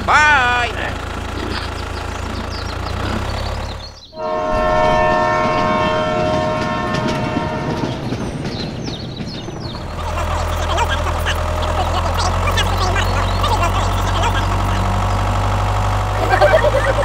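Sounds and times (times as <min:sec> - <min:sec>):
rumble of running train: 0:00.0 - 0:17.0
tractor engine running: 0:00.0 - 0:17.0
train horn blast: 0:04.2 - 0:08.3.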